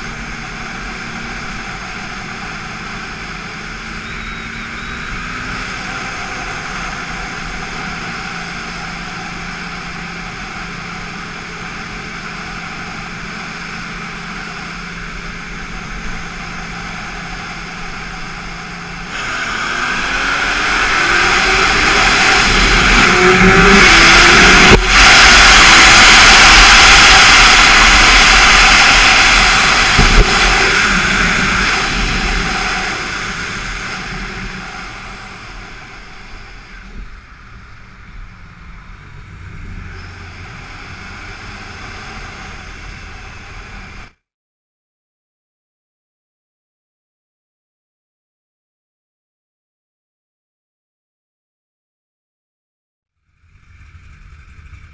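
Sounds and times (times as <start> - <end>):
rush of wind: 0.0 - 44.1
motorcycle engine: 0.0 - 44.2, 53.2 - 54.9.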